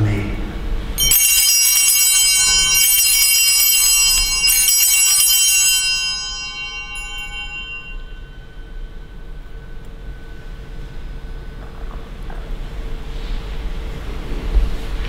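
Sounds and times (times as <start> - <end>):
altar bells ringing: 1.0 - 12.8.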